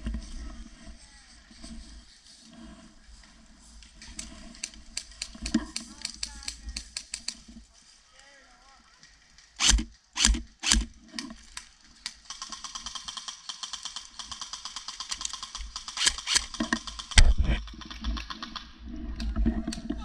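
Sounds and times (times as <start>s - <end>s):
airsoft rifle shots: 9.6s - 10.9s, 15.8s - 17.4s.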